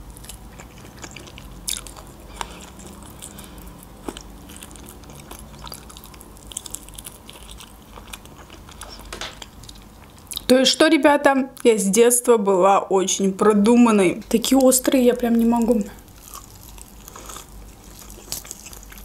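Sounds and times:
person chewing with mouth clicks: 0.0s - 10.5s, 16.0s - 19.0s
faint low hum: 0.0s - 19.0s.

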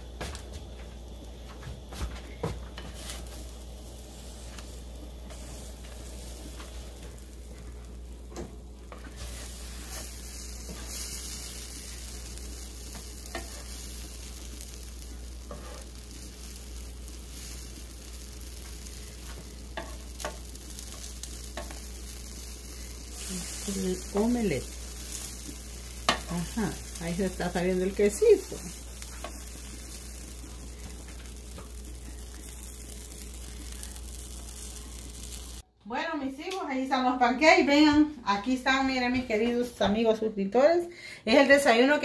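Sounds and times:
omelette sizzling on a griddle: 0.0s - 35.6s
spatula scraping and tapping: 12.9s - 13.8s, 15.4s - 15.9s, 18.6s - 21.8s.

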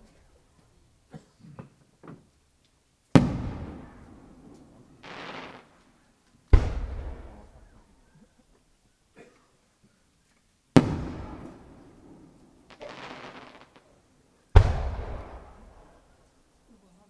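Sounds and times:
faint firework pops: 3.1s - 7.8s, 10.7s - 11.8s, 12.4s - 16.0s
firework bangs with rumbling echo: 3.2s - 5.7s, 6.5s - 7.8s, 10.8s - 13.5s, 14.5s - 16.0s
short hiss: 4.5s - 6.1s.

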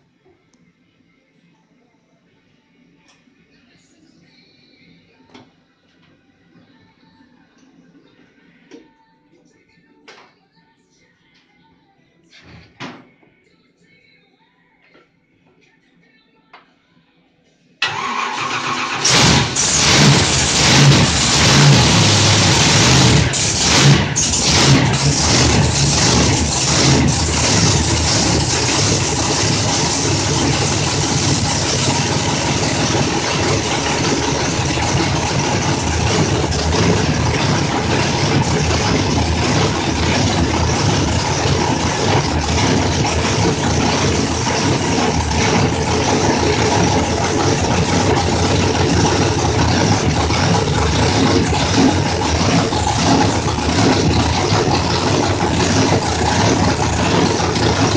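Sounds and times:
engine running on dyno: 17.8s - 57.9s.

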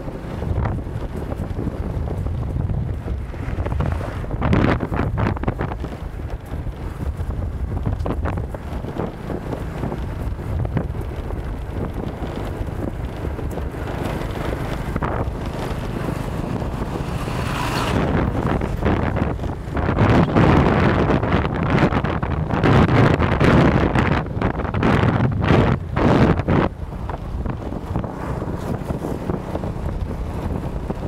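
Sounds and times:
rough road rumble: 0.0s - 31.0s
wind buffeting microphone: 0.0s - 31.0s.

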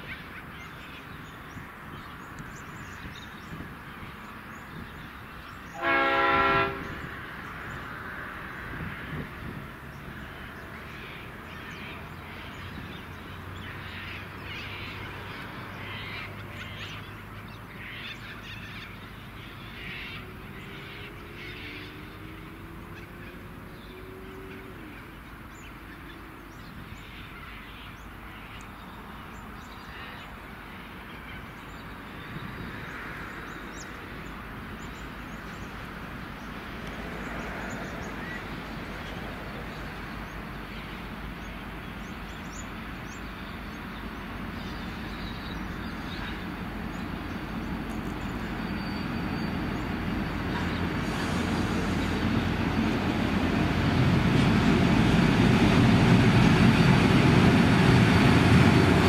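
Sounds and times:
diesel locomotive engine hum: 0.0s - 59.0s
train wheels on rails: 32.8s - 59.0s.

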